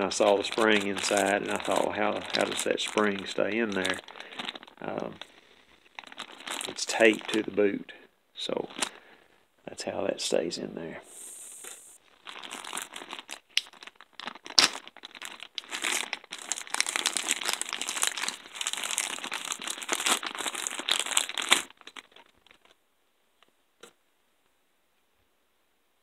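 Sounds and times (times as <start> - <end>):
plastic bag crinkling: 0.0 - 7.7, 8.4 - 9.2, 11.1 - 22.8.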